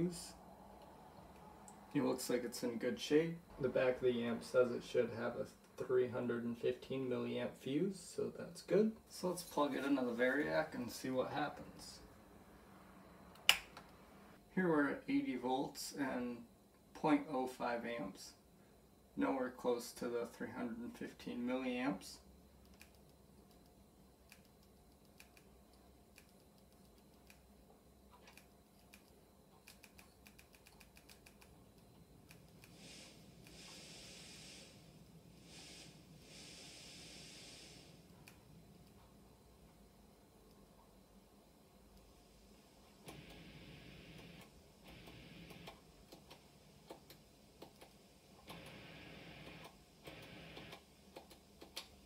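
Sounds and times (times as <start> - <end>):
amplifier hiss: 0.0 - 23.0, 29.8 - 52.0
faint low hum: 0.0 - 52.0
faint clicks: 49.4 - 52.0.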